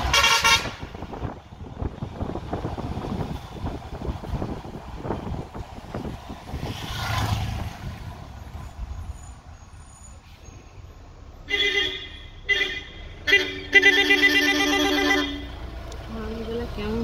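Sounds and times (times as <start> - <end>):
vehicle horn blaring: 0.0 - 1.1, 11.5 - 15.6
bus engine and road rumble: 0.0 - 17.0
wind: 0.0 - 17.0
air brakes hissing: 9.1 - 10.8.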